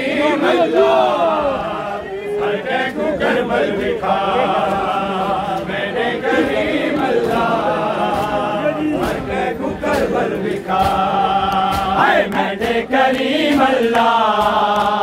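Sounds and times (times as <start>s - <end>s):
men chanting a lament: 0.0s - 15.0s.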